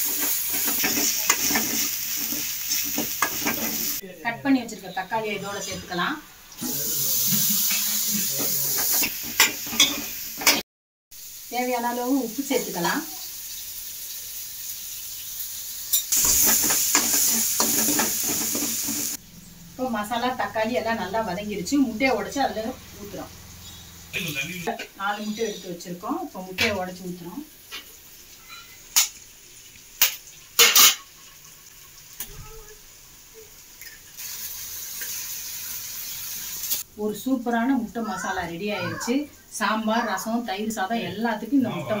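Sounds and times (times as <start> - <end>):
spatula scraping a pan: 0.0 - 4.0, 7.2 - 10.6, 15.9 - 19.2
masala sizzling in oil: 0.0 - 42.0.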